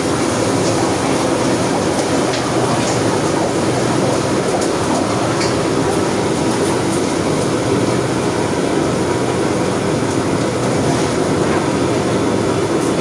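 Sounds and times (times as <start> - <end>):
gas wok burner roaring: 0.0 - 13.0.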